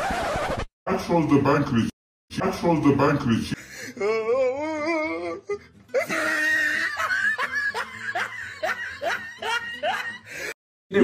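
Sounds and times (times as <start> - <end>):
person laughing: 6.0 - 10.5.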